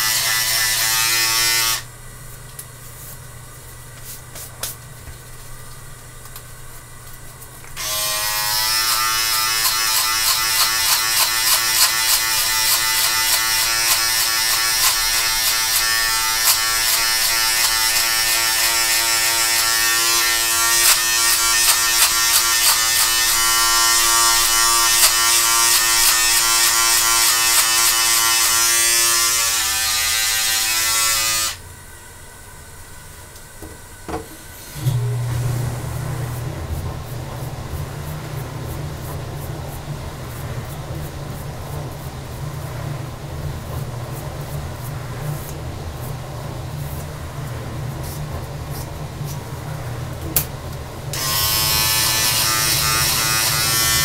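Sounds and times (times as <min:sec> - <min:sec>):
crackles of hair cutting: 0:00.0 - 0:01.9, 0:07.1 - 0:31.6, 0:51.2 - 0:54.0
electric beard trimmer buzzing: 0:00.0 - 0:01.9, 0:07.8 - 0:31.6, 0:51.2 - 0:54.0.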